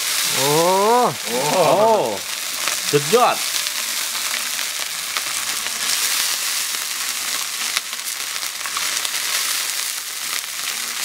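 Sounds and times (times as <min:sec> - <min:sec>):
beetles sizzling in a wok: 0:00.0 - 0:11.0.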